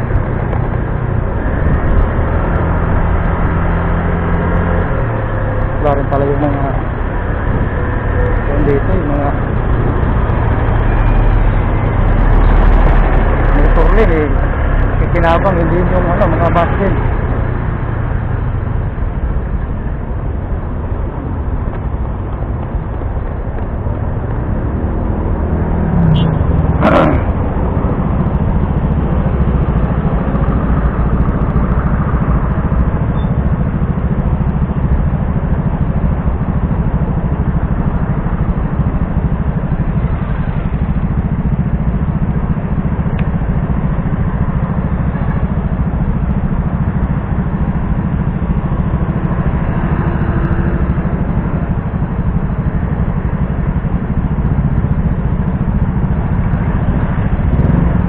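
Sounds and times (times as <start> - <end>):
traffic: 0.0 - 58.0
scooter engine idling: 26.2 - 58.0.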